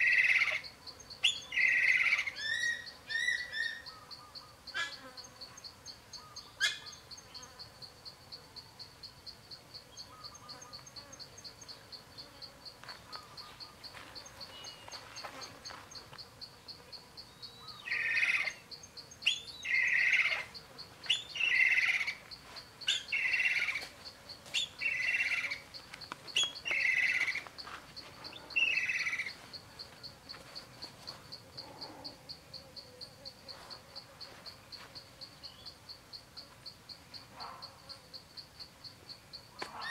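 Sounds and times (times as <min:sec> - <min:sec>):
bird calling: 0:00.0 - 0:05.1, 0:06.2 - 0:07.1, 0:13.0 - 0:15.8, 0:17.2 - 0:23.9, 0:24.5 - 0:30.0
high-pitched insect trill: 0:00.0 - 0:39.9.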